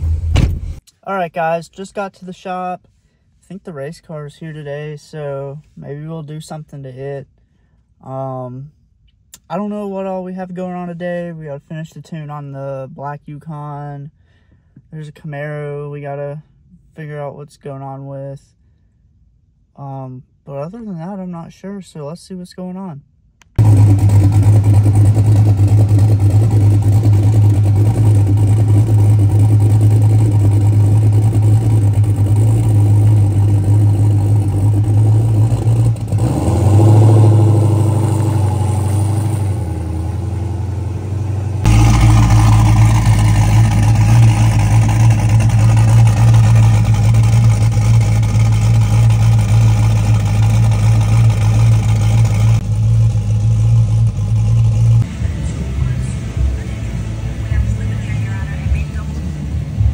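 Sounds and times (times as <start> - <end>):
car engine idling: 23.5 - 59.9
engine revving: 23.5 - 59.9.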